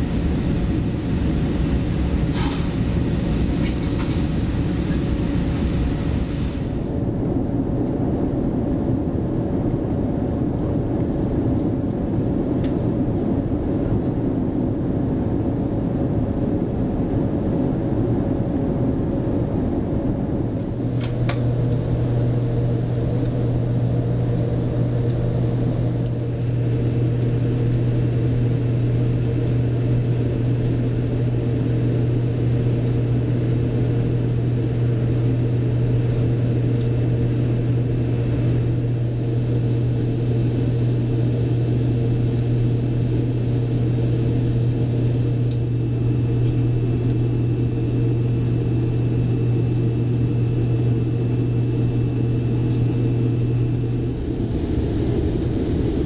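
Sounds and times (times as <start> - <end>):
airplane cabin drone: 0.0 - 56.0.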